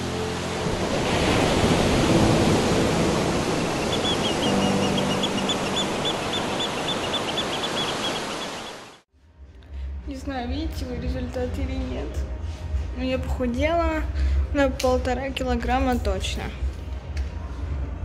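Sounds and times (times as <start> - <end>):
surf washing over rocks: 0.0 - 9.0
high chirps: 3.6 - 8.9.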